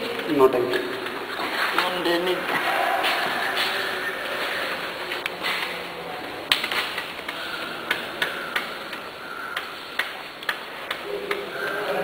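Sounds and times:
sharp clicks: 6.5 - 11.8.

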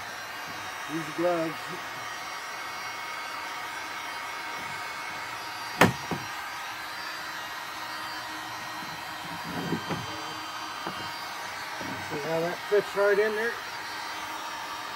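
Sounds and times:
heat gun blowing: 0.0 - 14.9
sharp knock: 5.8 - 6.2.

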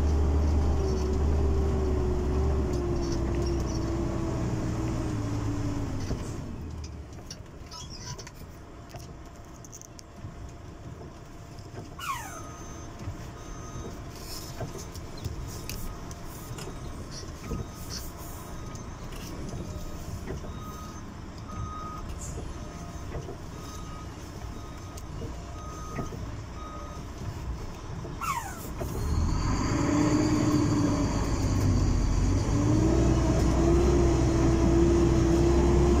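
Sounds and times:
short falling whistle: 12.0 - 12.9, 28.2 - 31.6
short electronic beeps: 12.0 - 13.9.

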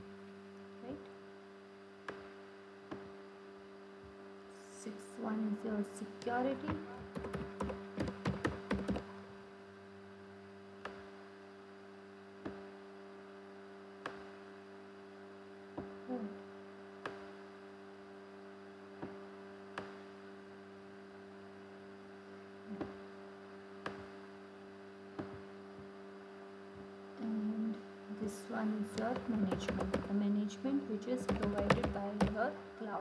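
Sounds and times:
electrical mains hum: 0.0 - 33.0
computer keystrokes: 7.1 - 9.1, 29.0 - 30.1, 31.2 - 32.4.

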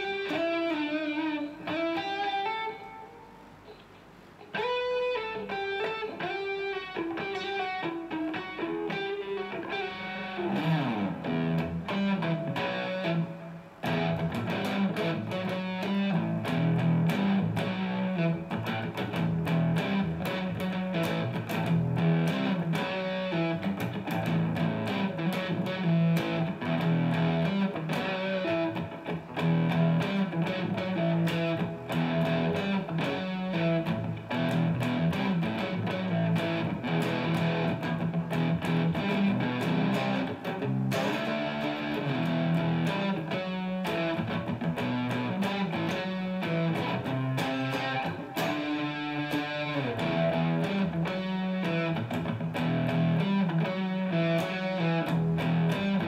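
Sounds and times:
electric guitar playing chords: 0.0 - 56.0.

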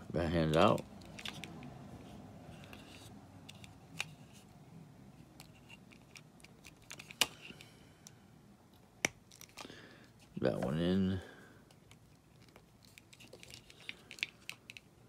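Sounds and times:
plastic rubbing and scraping: 5.2 - 7.6, 11.9 - 14.9.

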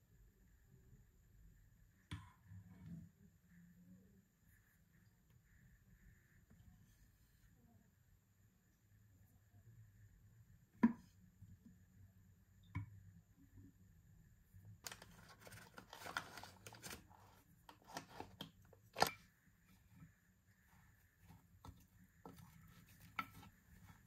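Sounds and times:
packet crinkling and rustling: 14.8 - 19.2.

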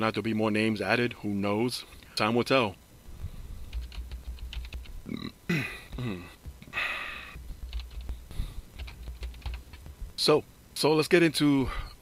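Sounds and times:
murmured vocal sound: 5.0 - 7.4.

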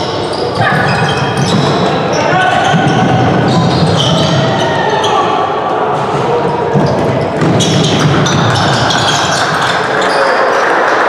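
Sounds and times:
people shouting and calling: 2.1 - 6.4.

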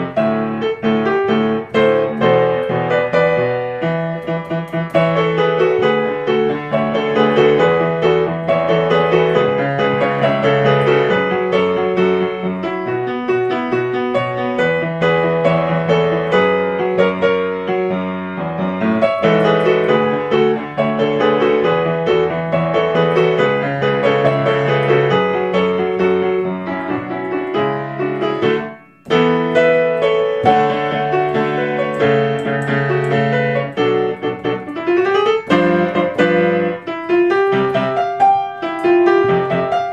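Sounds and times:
piano music: 0.0 - 39.9.

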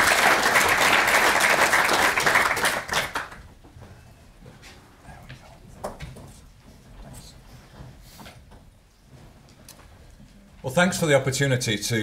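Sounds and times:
audience applauding: 0.0 - 3.5.

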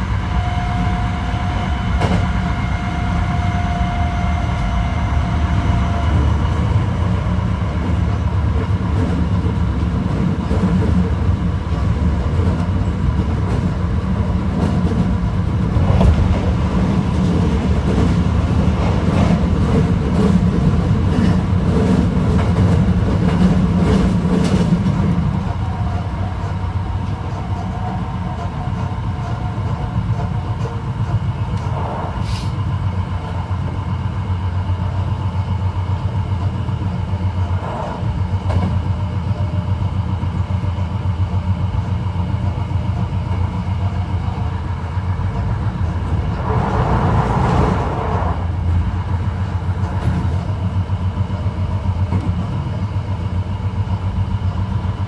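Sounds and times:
train motor hum: 0.0 - 55.0
train wheels rumbling on rail: 0.0 - 55.0.

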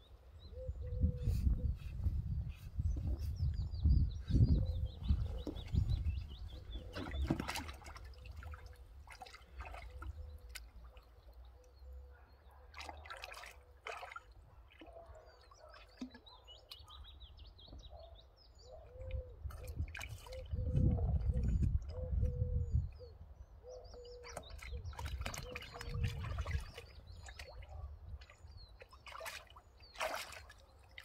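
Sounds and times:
small birds chirping: 0.0 - 31.0
water sloshing and splashing: 5.2 - 11.5, 12.7 - 16.8, 19.4 - 22.0, 24.3 - 31.0.

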